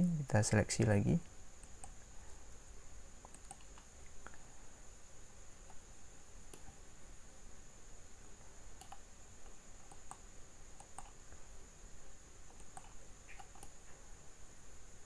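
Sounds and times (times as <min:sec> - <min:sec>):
computer mouse clicks: 0:01.6 - 0:02.0, 0:03.2 - 0:04.4, 0:06.5 - 0:06.7, 0:08.8 - 0:10.2, 0:10.8 - 0:11.2, 0:12.5 - 0:13.8.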